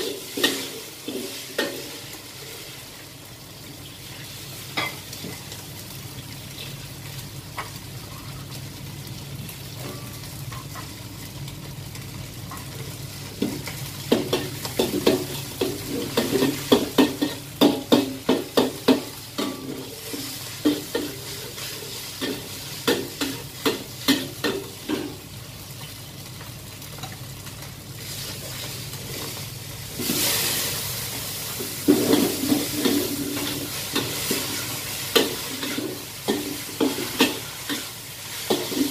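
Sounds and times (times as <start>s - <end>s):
noodles sizzling in a wok: 0.0s - 38.9s
metal utensil scraping a wok: 31.7s - 38.9s.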